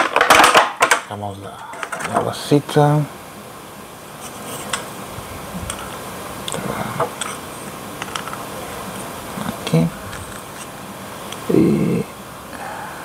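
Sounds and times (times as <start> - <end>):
plastic pieces clicking: 0.0 - 1.1.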